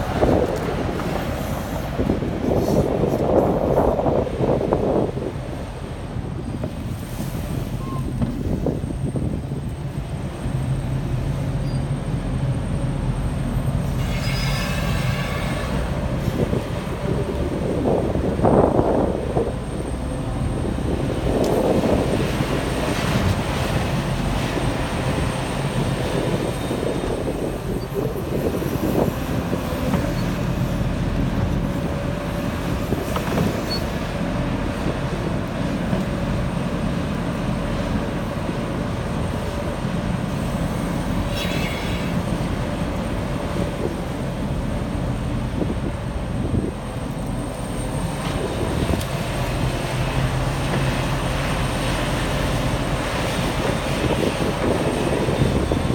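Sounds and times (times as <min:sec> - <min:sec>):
excavator diesel engine: 0:15.7 - 0:55.9.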